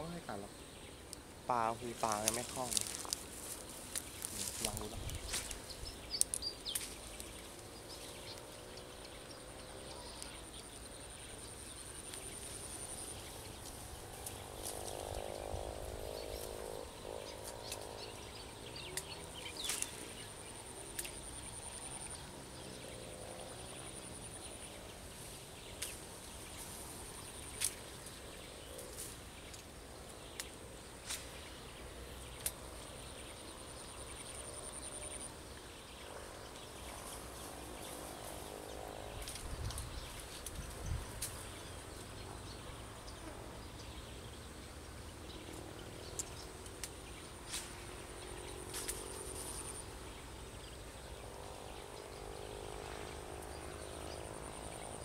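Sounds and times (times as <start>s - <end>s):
insect trilling: 0.0s - 8.6s
frogs croaking: 0.0s - 25.1s.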